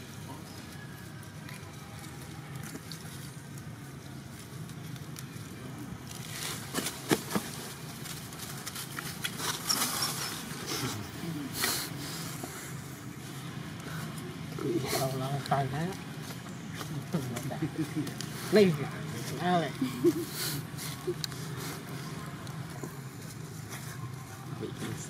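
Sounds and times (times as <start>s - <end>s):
dry leaves crackling and rustling: 0.0s - 10.9s, 13.1s - 25.0s.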